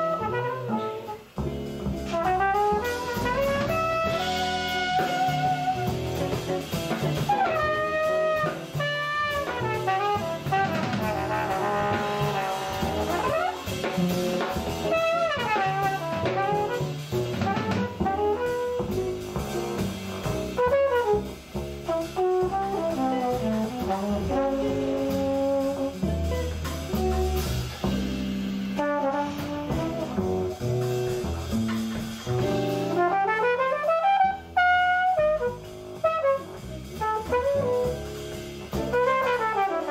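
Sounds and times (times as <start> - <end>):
trumpet solo: 0.0 - 1.4, 2.1 - 19.5, 20.5 - 27.4, 28.8 - 31.2, 32.7 - 39.9
drum kit: 0.0 - 39.9
upright bass: 0.0 - 39.9.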